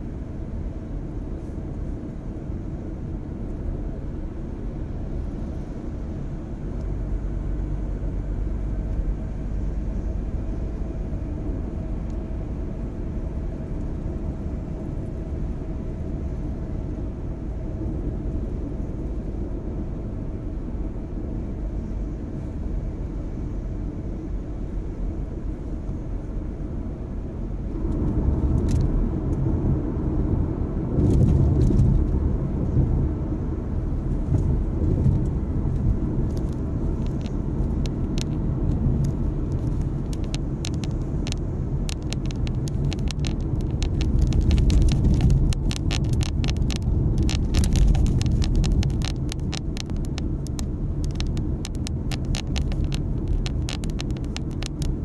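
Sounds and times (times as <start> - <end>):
car road noise rumble: 0.0 - 55.0
light rapid clicking: 36.3 - 55.0.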